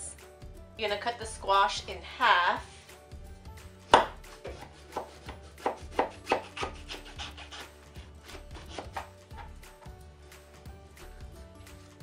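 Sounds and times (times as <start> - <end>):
knife sawing through squash: 4.3 - 9.5.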